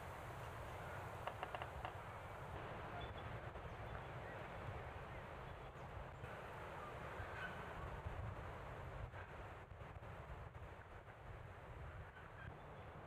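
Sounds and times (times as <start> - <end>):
wind rumble on microphone: 2.6 - 13.0.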